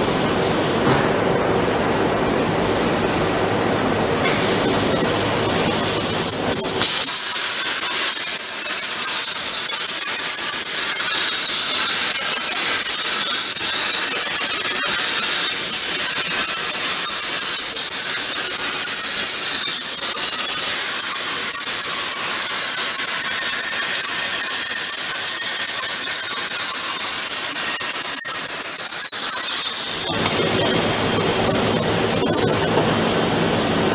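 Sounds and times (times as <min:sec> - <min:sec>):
plasma torch hissing with whine: 0:04.2 - 0:33.9.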